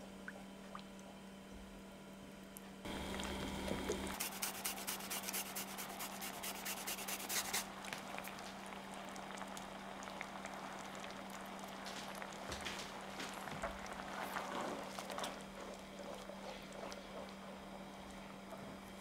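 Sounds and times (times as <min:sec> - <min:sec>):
ginger scraping on a grater: 0:04.2 - 0:07.6
sauce simmering in a pan: 0:07.7 - 0:18.4.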